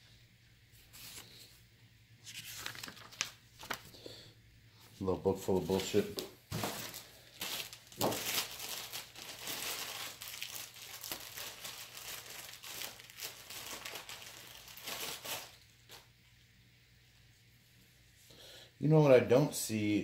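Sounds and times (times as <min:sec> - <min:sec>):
packaging crinkling and rustling: 0:02.2 - 0:04.0, 0:05.4 - 0:16.1.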